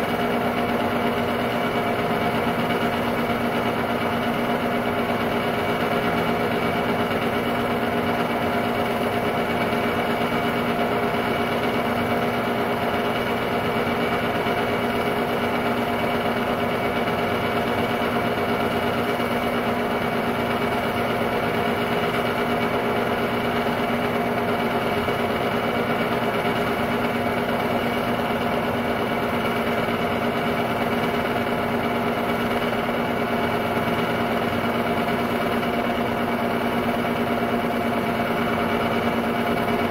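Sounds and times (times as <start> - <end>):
film projector motor whirring: 0.0 - 39.9.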